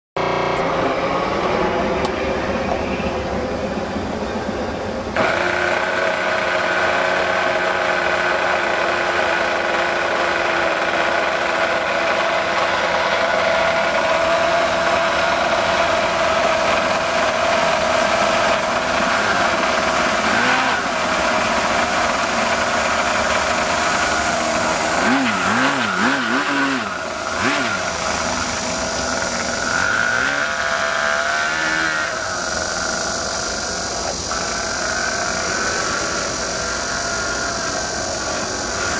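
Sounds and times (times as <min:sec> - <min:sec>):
small model engine running: 0:05.1 - 0:38.9.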